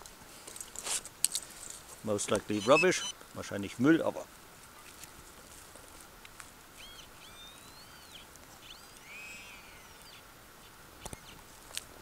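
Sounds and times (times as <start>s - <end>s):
faint background noise: 0.0s - 12.0s
bird calling: 2.3s - 3.2s, 6.8s - 11.4s.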